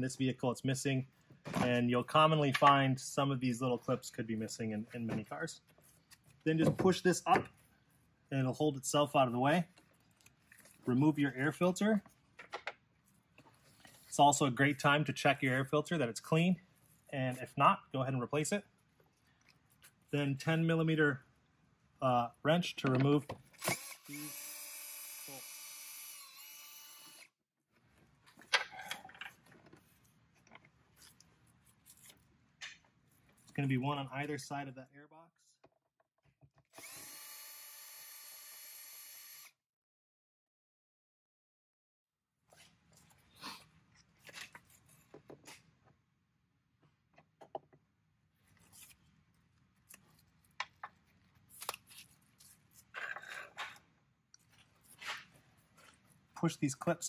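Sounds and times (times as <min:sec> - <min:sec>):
cordless drill whine: 0:23.6 - 0:27.3, 0:36.7 - 0:39.6
scrape: 0:54.8 - 0:55.3.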